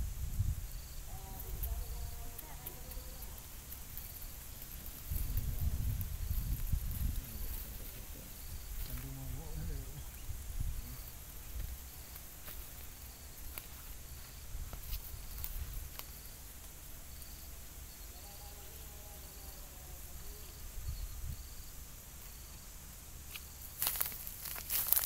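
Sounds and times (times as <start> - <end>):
insect chirping: 0.0 - 25.0
faint ticks: 1.2 - 7.7, 10.9 - 18.2
low rumble: 3.5 - 11.8.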